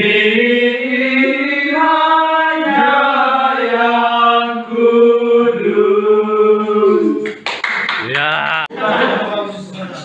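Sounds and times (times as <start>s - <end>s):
men singing a hymn: 0.0s - 7.2s.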